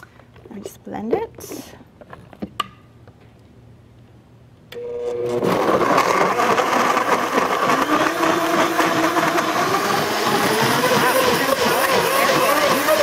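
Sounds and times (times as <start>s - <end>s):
blender running: 4.8s - 13.0s.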